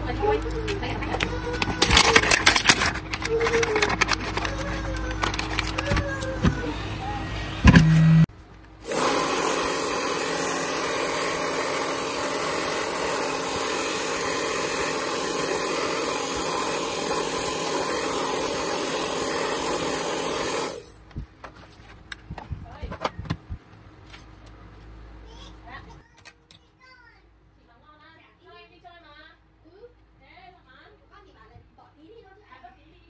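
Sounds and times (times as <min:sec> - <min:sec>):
loud burst: 0:08.8 - 0:20.8
hair dryer blowing: 0:08.8 - 0:20.9.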